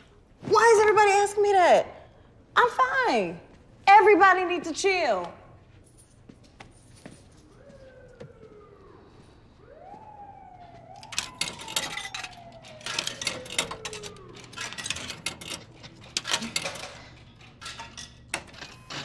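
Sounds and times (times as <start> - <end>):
siren-like tone: 7.3 - 15.8.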